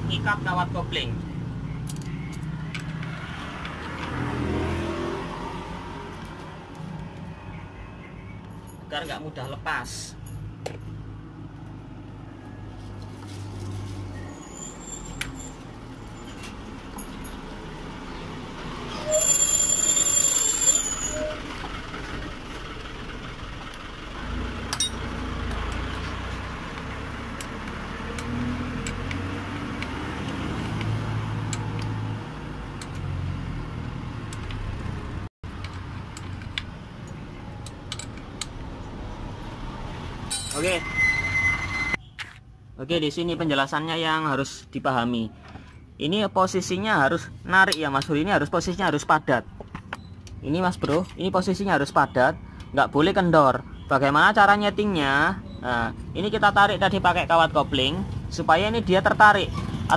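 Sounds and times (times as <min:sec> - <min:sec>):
passing road traffic: 0:00.0 - 0:59.9
loud high-pitched squeal: 0:18.9 - 0:21.7, 0:40.6 - 0:42.0.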